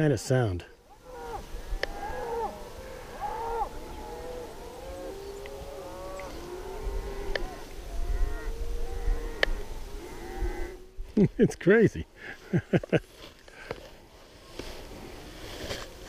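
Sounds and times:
cattle lowing: 0:00.9 - 0:11.1.

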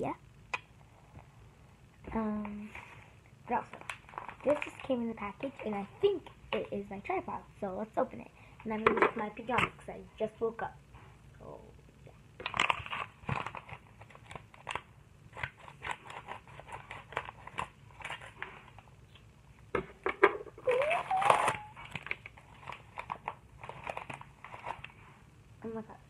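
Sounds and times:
envelope tearing with squeak: 0:20.7 - 0:22.1
paper envelope crinkling: 0:20.7 - 0:24.9.

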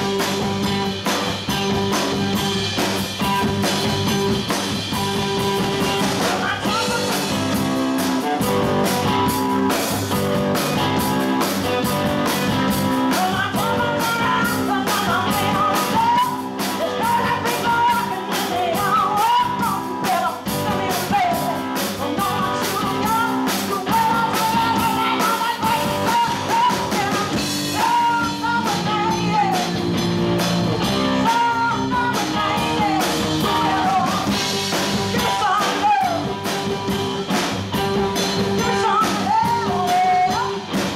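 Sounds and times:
drum kit beat: 0:00.0 - 0:40.9
electric bass: 0:00.0 - 0:40.9
electric guitar: 0:00.0 - 0:40.9
woman singing: 0:06.2 - 0:09.3, 0:10.6 - 0:29.9, 0:30.9 - 0:37.0, 0:38.3 - 0:40.9.

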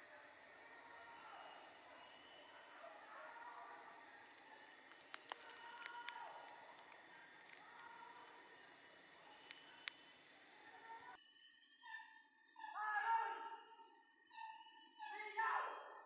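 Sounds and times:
insects droning: 0:00.0 - 0:16.0
faint ticks: 0:04.9 - 0:07.9, 0:09.3 - 0:11.0.

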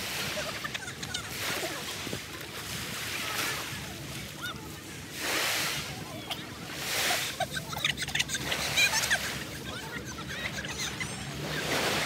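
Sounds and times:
small waves washing onto shore: 0:00.0 - 0:12.0.

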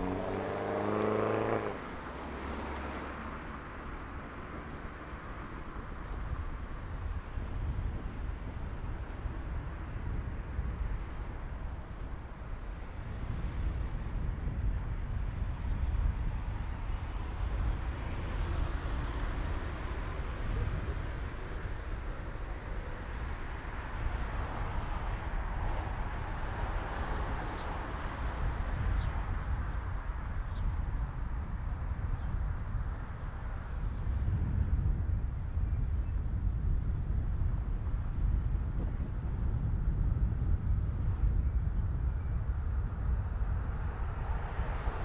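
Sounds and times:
cars passing: 0:00.0 - 0:32.1, 0:42.5 - 0:45.0
low road rumble: 0:00.0 - 0:45.0.

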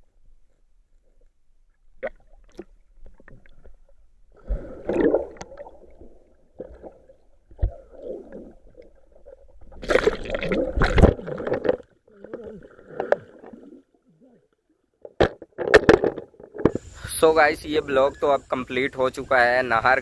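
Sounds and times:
water bubbling underwater: 0:01.9 - 0:14.6
water splashing: 0:02.0 - 0:14.2.

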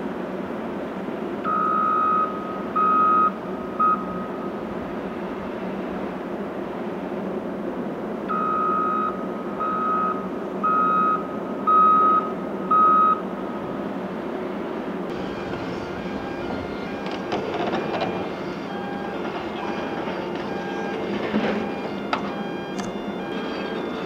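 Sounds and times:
reversing alarm beeping: 0:01.4 - 0:04.4, 0:08.3 - 0:13.2, 0:15.1 - 0:24.0
crusher machinery noise: 0:14.6 - 0:24.0
loader engine running: 0:15.1 - 0:24.0.

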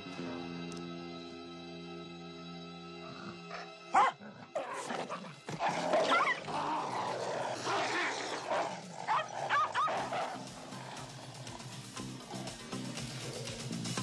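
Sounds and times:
dog yelping: 0:04.0 - 0:04.9, 0:05.9 - 0:06.6, 0:07.7 - 0:10.4.

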